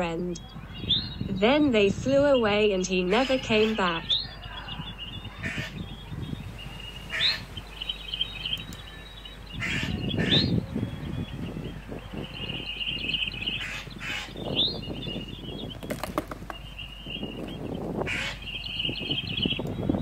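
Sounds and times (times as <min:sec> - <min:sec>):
jay harsh calls: 0:09.4 - 0:10.6, 0:18.0 - 0:18.5.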